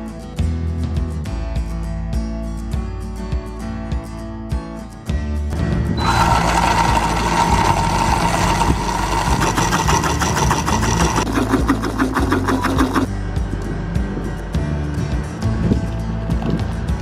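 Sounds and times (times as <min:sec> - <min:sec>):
blender motor running: 0:06.0 - 0:13.1
rapid rattling pulse: 0:06.0 - 0:13.1.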